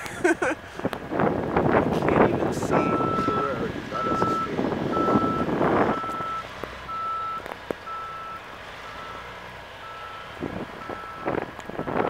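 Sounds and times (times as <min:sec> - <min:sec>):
truck reversing alarm beeping: 0:02.8 - 0:12.0.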